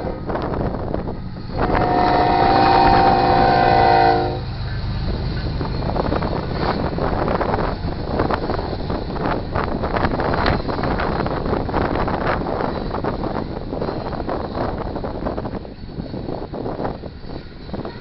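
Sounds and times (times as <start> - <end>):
locomotive horn chord: 1.6 - 4.5
train wheels clattering over rail joints: 4.4 - 18.0.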